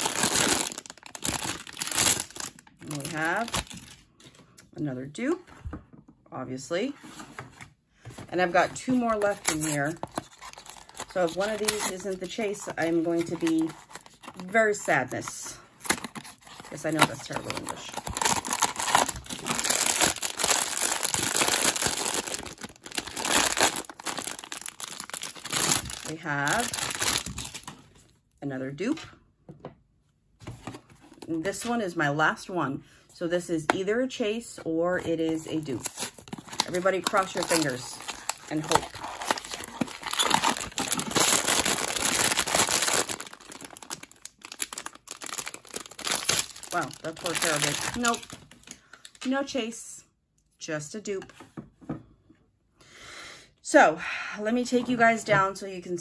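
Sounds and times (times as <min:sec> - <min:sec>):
foil pouch crinkling: 0:00.0 - 0:04.1, 0:09.2 - 0:14.6, 0:15.9 - 0:27.8, 0:35.6 - 0:49.2.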